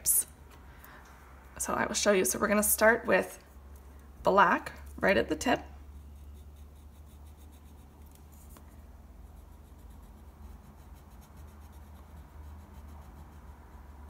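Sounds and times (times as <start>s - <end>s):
steady low hum: 0.0s - 14.0s
pencil scratching on paper: 5.8s - 14.0s.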